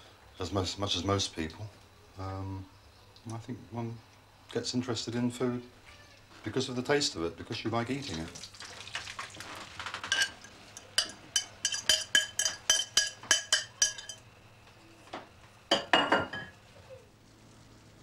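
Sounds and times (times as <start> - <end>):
spoon clinking against ceramic bowl: 10.1 - 14.2.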